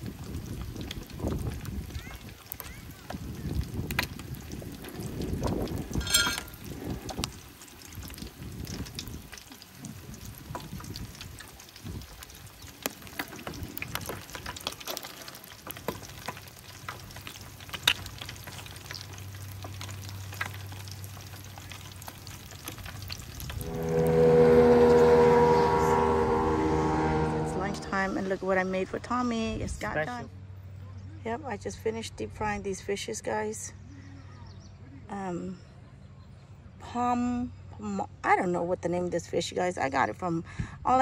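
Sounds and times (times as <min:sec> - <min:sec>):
motorboat engine passing: 0:19.6 - 0:30.6.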